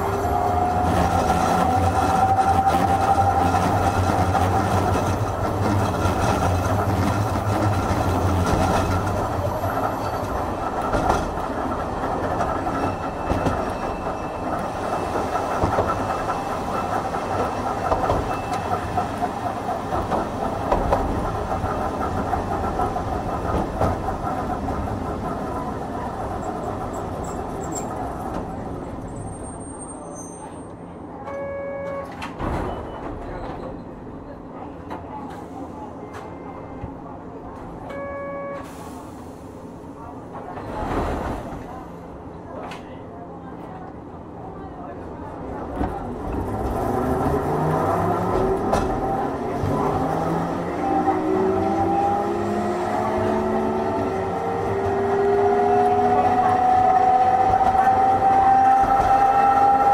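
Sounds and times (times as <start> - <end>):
tram rumbling over rail joints: 0.0 - 38.0, 38.6 - 59.9.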